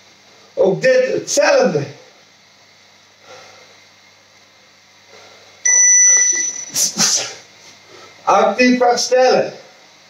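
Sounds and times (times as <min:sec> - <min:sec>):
electronic timer beep: 0:05.6 - 0:06.8.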